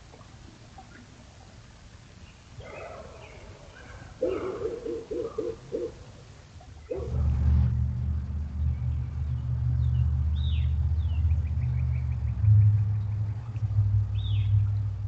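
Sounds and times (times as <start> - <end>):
downward-slurred bird calls: 2.6 - 7.3
low motor rumble: 6.9 - 15.0.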